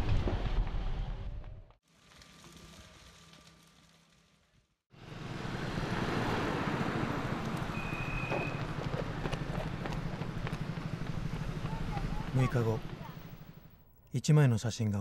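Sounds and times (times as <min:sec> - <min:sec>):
low rumble of fire: 0:00.0 - 0:06.0
distant traffic: 0:04.9 - 0:14.0.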